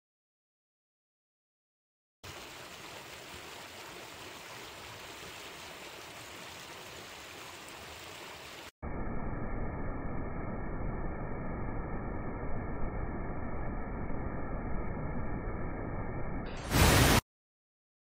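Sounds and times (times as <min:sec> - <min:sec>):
muffled rush of water: 0:02.2 - 0:08.7, 0:16.6 - 0:17.2
waterfall rushing over rocks: 0:16.6 - 0:17.2.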